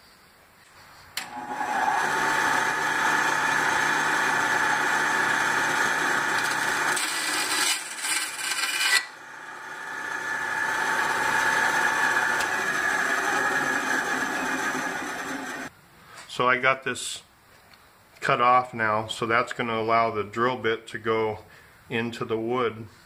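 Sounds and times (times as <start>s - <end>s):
bandsaw running: 1.2s - 15.7s
saw cutting plastic: 1.2s - 15.7s.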